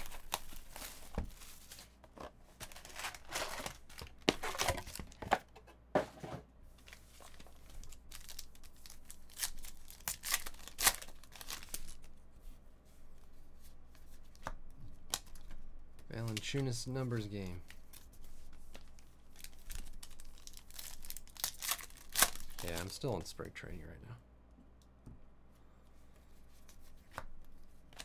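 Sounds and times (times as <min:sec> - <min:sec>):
card pack wrappers tearing: 0:07.2 - 0:12.0, 0:19.4 - 0:23.1.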